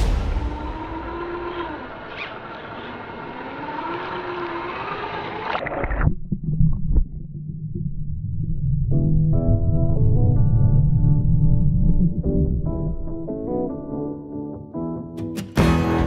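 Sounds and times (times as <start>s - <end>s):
small electric motor whining: 0.8s - 5.7s
muffled underwater rumble: 5.6s - 13.7s.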